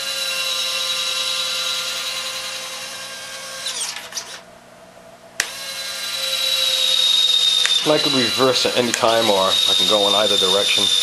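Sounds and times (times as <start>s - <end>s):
gear motors whining: 0.0s - 4.4s, 5.4s - 11.0s
mechanical clicks: 6.8s - 8.0s.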